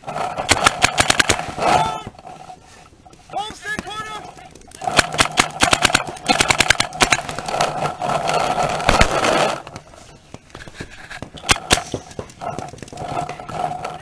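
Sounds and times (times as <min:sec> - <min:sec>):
paintball gun shots: 0:00.3 - 0:02.0, 0:04.8 - 0:07.9, 0:08.6 - 0:09.7, 0:11.4 - 0:12.3.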